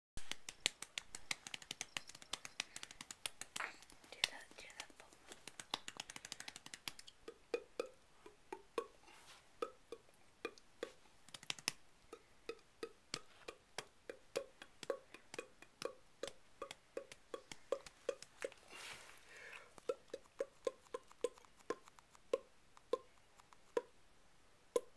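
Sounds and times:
person clapping hands: 0.2 - 7.1.

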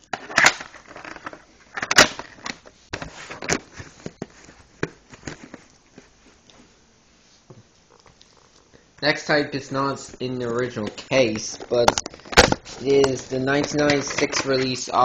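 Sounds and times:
plastic cassette cases clicking: 0.0 - 4.2, 10.8 - 14.9.

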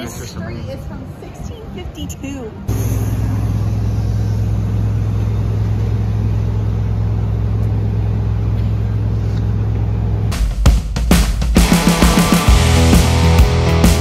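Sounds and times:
diesel truck idling: 2.5 - 10.5.

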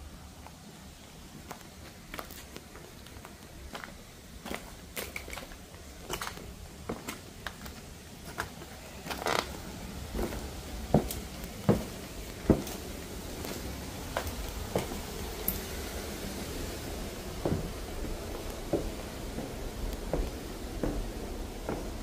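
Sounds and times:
footsteps crunching over debris: 1.4 - 15.5.

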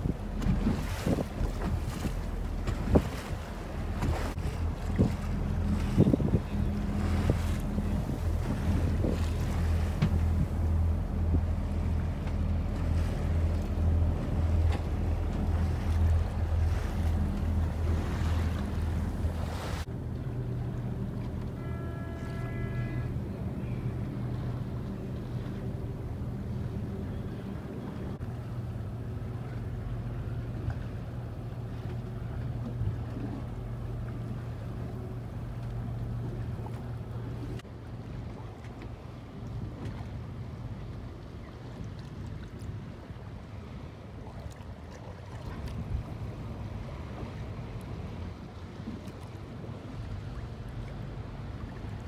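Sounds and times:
wind buffeting microphone: 0.0 - 19.9
boat engine droning: 0.0 - 52.0
water lapping: 0.0 - 52.0.

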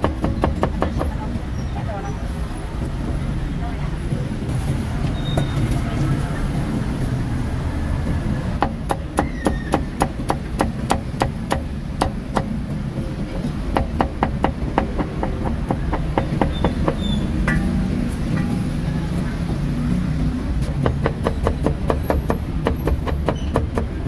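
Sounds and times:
street traffic rumble: 0.0 - 24.0.

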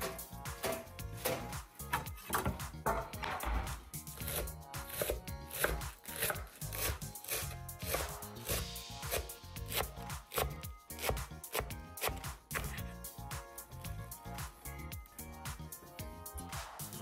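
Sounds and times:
knife chopping on wooden board: 0.0 - 12.8.

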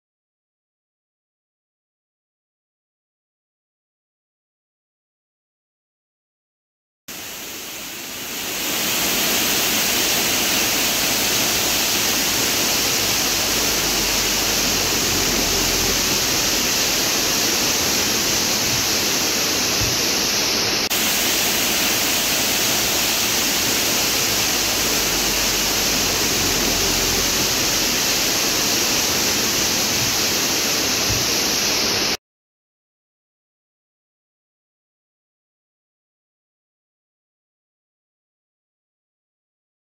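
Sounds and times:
waterfall rushing: 7.1 - 32.2.

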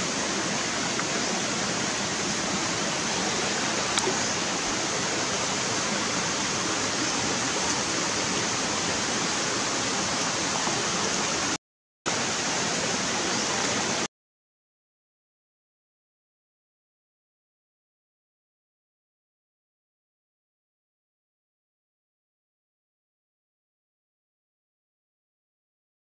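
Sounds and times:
stream water rushing: 0.0 - 14.1.

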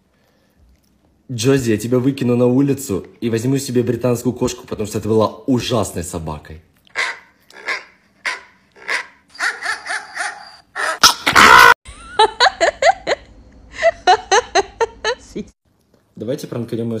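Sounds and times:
dog barking and yipping: 6.9 - 11.8
woman laughing: 11.9 - 15.5.

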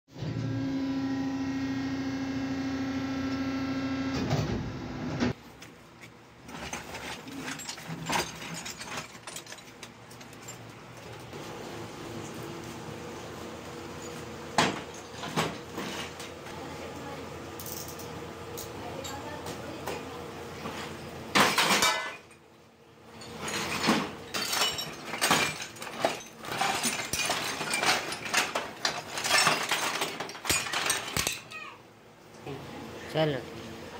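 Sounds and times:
workshop machine humming: 0.1 - 5.4, 9.9 - 31.2
metal clanks and clinks: 6.5 - 11.3, 21.3 - 22.4, 23.1 - 31.6.

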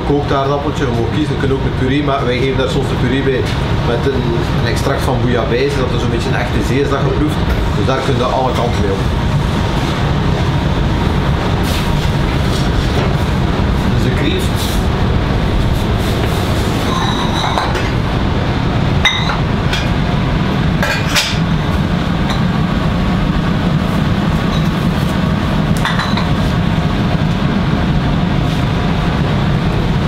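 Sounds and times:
kitchen equipment rumble: 0.0 - 30.0
pots and utensils clinking: 16.8 - 18.0, 19.0 - 20.0, 20.8 - 21.5, 25.8 - 26.4.

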